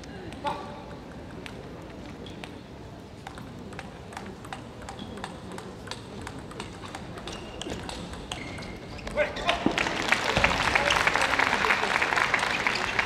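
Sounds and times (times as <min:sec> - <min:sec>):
table tennis ball clicking: 0:03.2 - 0:08.8
shoe squeaks: 0:07.2 - 0:09.5.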